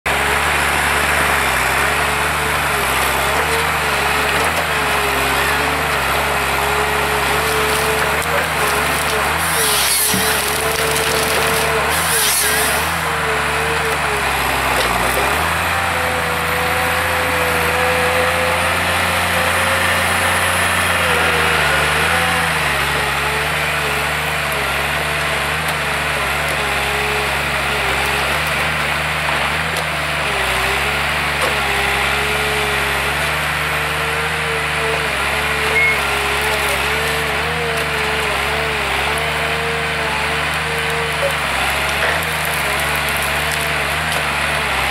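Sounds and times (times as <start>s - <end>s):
diesel engine under load: 0.1s - 44.9s
hydraulic whine: 2.5s - 24.6s, 35.4s - 44.9s.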